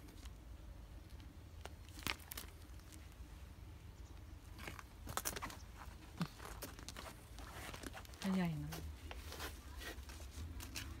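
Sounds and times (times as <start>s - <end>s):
gravel crunching and clicking: 0.0s - 3.3s, 4.0s - 11.0s.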